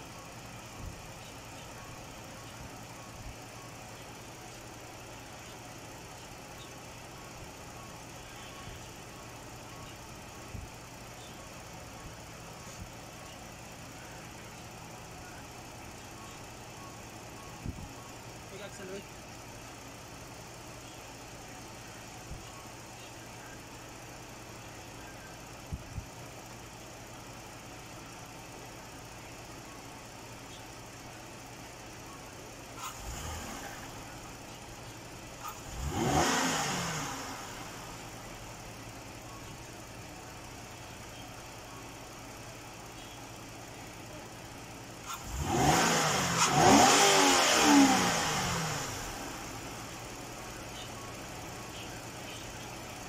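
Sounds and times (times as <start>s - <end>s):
car engine idling and revving: 0.0s - 53.0s.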